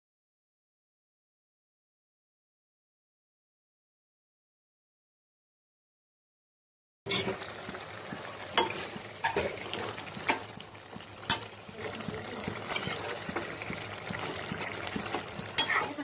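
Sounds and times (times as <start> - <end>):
spoon stirring bubbling gravy: 7.1 - 16.0
spoon clicking against pan: 11.2 - 11.6, 15.6 - 15.9.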